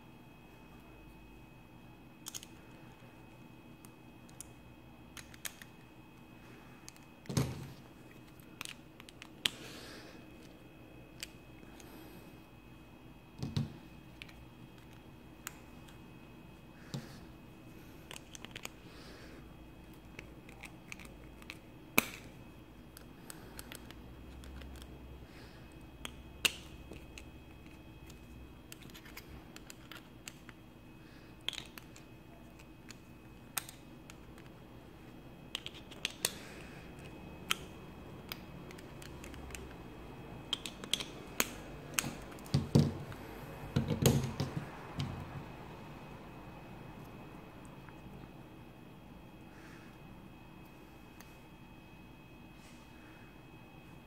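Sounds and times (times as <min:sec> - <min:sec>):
knocks and handling thumps: 0:13.4 - 0:14.4, 0:41.9 - 0:45.5.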